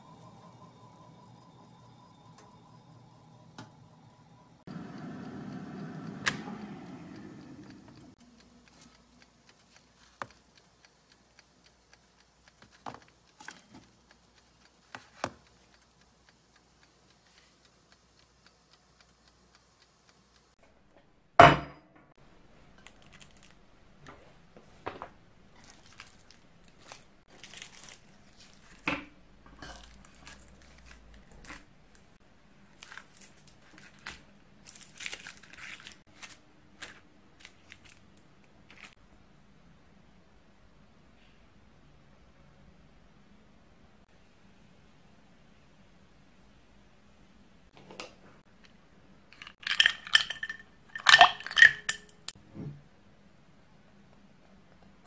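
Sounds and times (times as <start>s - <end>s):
baking things clicking and knocking: 5.6s - 32.1s, 49.3s - 52.4s
paper cupcake liners rustling: 25.5s - 28.8s, 29.7s - 32.1s, 32.7s - 39.0s.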